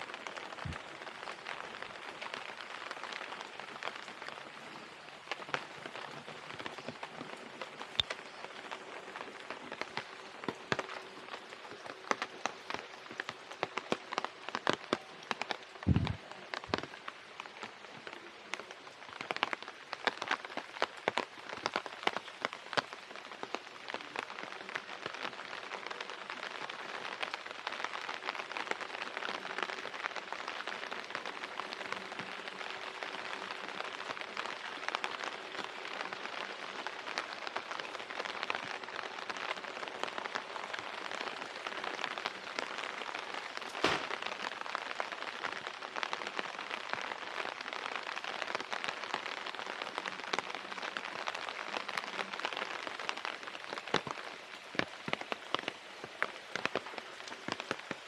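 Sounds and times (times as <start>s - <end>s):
steady rain falling: 0.0s - 58.0s
sharp knock: 43.8s - 44.2s.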